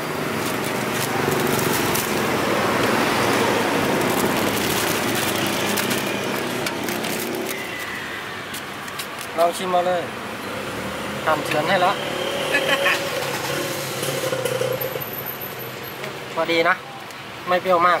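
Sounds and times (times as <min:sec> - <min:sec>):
plastic bag crinkling: 0:00.1 - 0:08.0
motor vehicle passing: 0:10.5 - 0:15.8.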